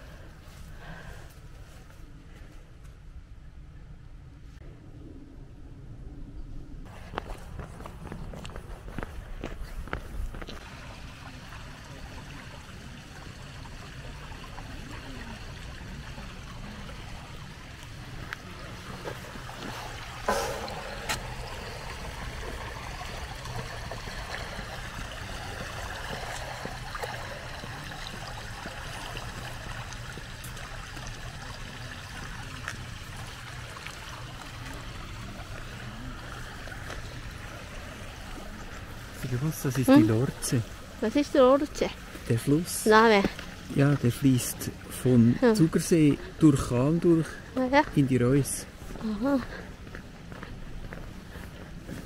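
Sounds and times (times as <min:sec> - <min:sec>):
river flowing: 0:10.4 - 0:52.0.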